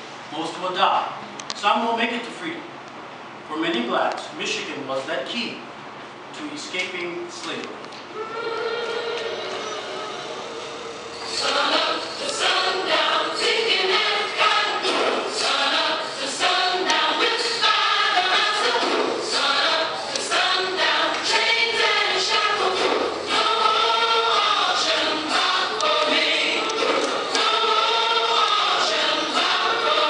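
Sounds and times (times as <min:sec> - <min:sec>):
choir singing: 0:08.2 - 0:30.0.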